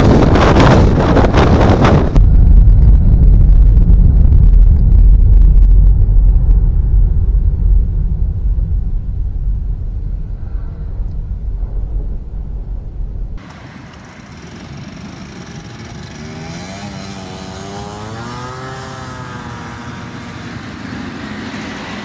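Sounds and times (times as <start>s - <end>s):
deep muffled jet rumble: 0.0s - 13.4s.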